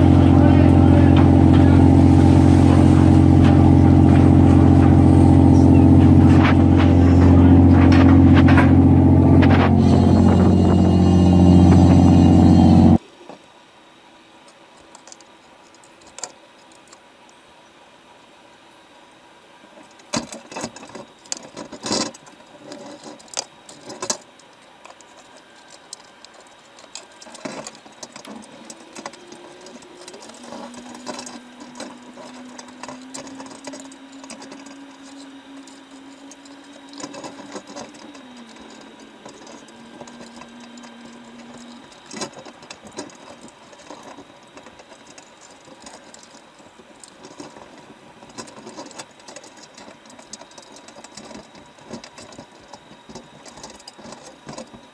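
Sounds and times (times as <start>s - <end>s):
sharp knocks and clatter: 0.0s - 12.2s
machine humming: 0.0s - 13.0s, 25.6s - 54.9s.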